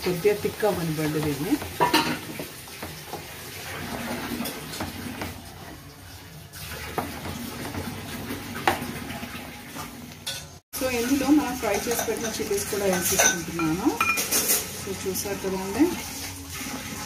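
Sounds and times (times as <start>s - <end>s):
wet sizzle and bubbling: 0.0s - 17.0s.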